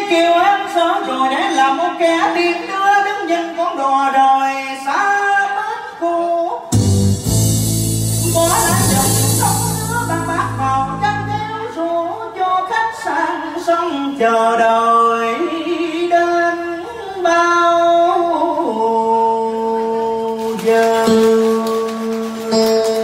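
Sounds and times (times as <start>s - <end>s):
person singing slow melody: 0.0s - 22.6s.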